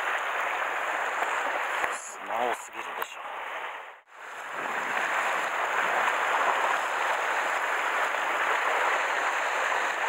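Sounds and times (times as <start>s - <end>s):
waves breaking on rocks: 4.2s - 10.0s.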